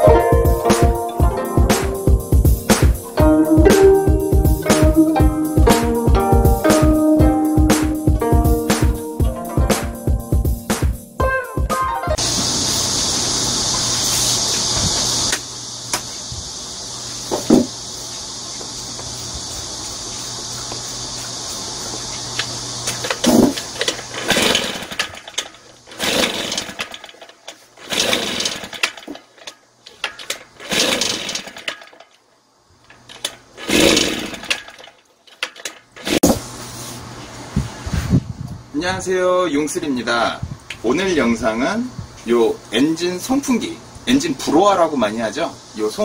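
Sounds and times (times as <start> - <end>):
engine turning over: 21.8 - 32.2, 32.8 - 36.5
recoil starter pulls: 22.4 - 32.2, 32.8 - 36.3.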